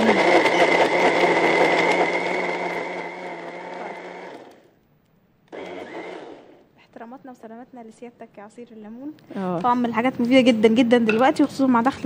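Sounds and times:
blender running: 0:00.0 - 0:04.7, 0:05.5 - 0:06.6.

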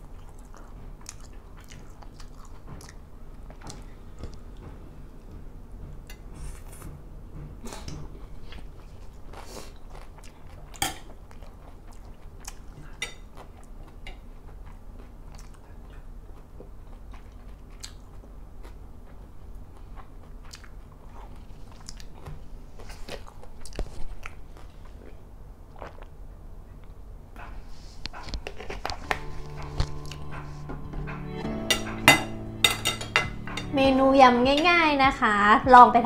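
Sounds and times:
person chewing food: 0:00.0 - 0:33.7
cutlery clicking on a plate: 0:31.7 - 0:33.7.

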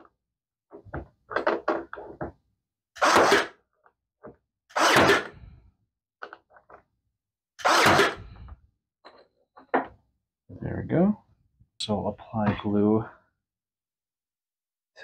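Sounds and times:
nail gun firing: 0:03.0 - 0:03.6, 0:04.7 - 0:05.3, 0:07.6 - 0:08.3.

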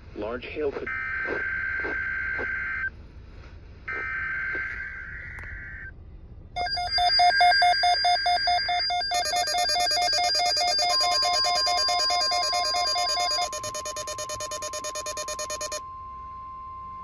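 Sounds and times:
looping electronic beeping melody: 0:06.6 - 0:15.8.

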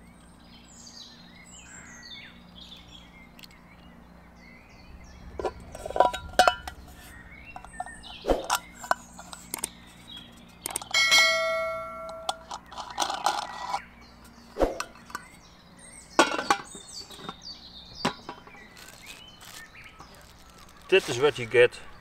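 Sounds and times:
metal lid ringing: 0:05.4 - 0:06.8, 0:10.7 - 0:13.8, 0:16.2 - 0:17.4
metal lid and pan clicks: 0:16.2 - 0:17.3.

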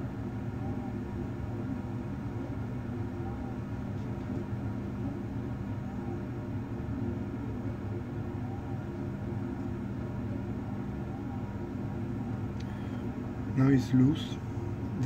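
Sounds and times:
machine hum with rushing fan: 0:00.0 - 0:15.0.

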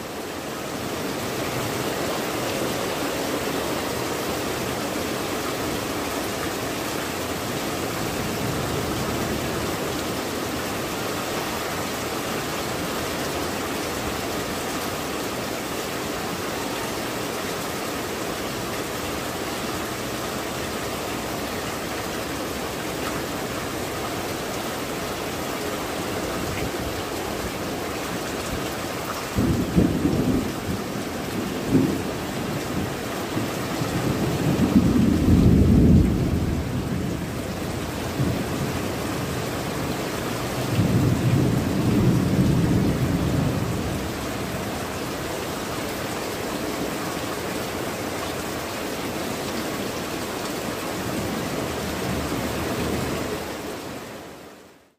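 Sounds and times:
heavy rain on tile roofs: 0:00.0 - 0:54.9
thunder rumbling: 0:29.3 - 0:39.6, 0:40.4 - 0:44.7.

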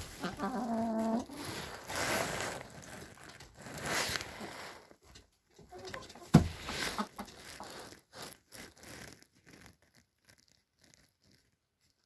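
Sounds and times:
hens scratching in wood shavings: 0:00.0 - 0:05.0, 0:05.6 - 0:12.0
sharp thump: 0:06.3 - 0:06.6.

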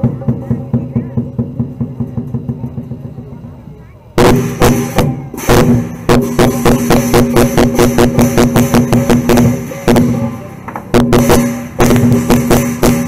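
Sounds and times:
big drum beating: 0:00.0 - 0:13.0
cymbals clashing: 0:04.2 - 0:13.0.

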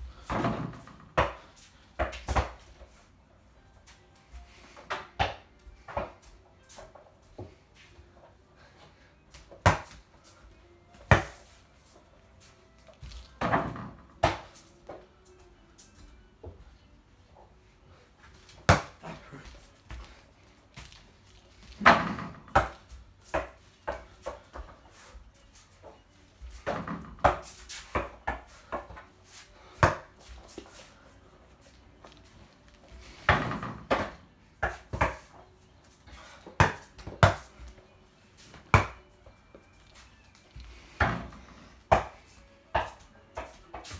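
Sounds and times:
ball thudding on door and floor: 0:00.2 - 0:02.7, 0:09.4 - 0:10.0, 0:10.9 - 0:11.4, 0:13.0 - 0:15.0, 0:18.6 - 0:19.2, 0:21.8 - 0:24.7, 0:26.4 - 0:29.1, 0:33.2 - 0:35.3, 0:36.6 - 0:37.5, 0:38.5 - 0:39.0, 0:41.0 - 0:43.9.

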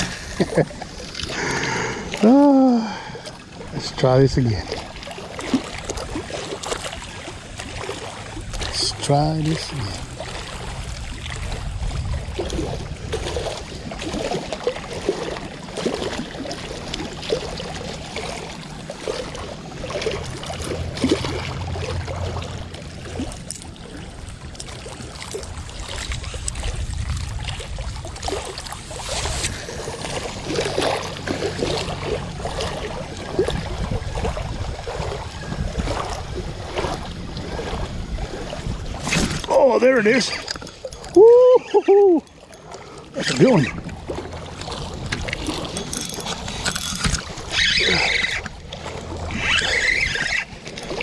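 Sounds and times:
small waves lapping: 0:00.0 - 0:51.0
wind buffeting microphone: 0:05.4 - 0:14.4, 0:25.6 - 0:39.5.

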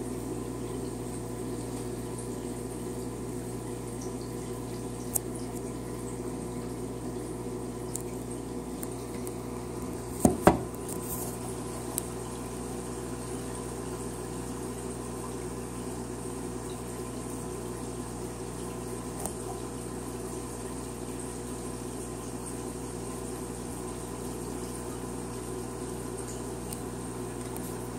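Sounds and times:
aquarium water bubbling: 0:00.0 - 0:27.9
sharp knocks: 0:10.2 - 0:10.7.

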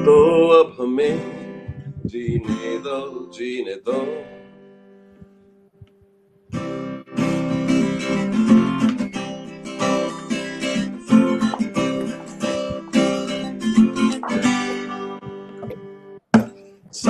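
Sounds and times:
acoustic guitar strumming: 0:00.0 - 0:17.0.

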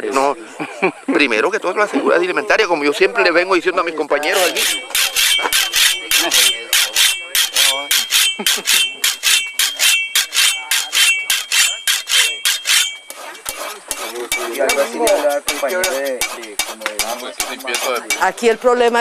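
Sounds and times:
metallic rasping strokes: 0:04.2 - 0:19.0.

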